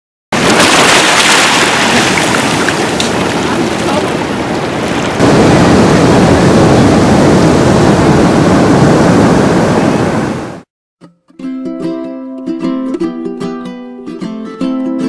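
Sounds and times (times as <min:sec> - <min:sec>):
seawater washing over rocks: 0:00.4 - 0:08.2
ocean surf breaking on rocks: 0:00.4 - 0:10.6.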